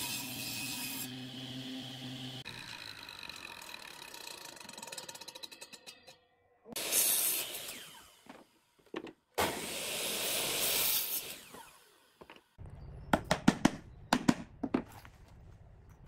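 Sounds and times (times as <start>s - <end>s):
miter saw cutting wood: 0.0s - 8.6s, 9.4s - 12.2s.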